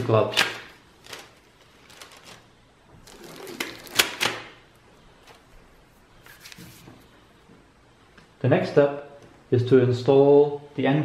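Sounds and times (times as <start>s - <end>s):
rubber gloves pulled off: 1.0s - 4.4s.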